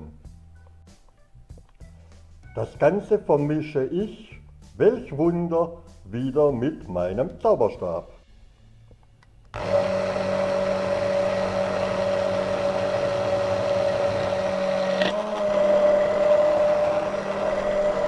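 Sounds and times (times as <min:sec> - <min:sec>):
immersion blender motor hum: 0:09.5 - 0:18.0.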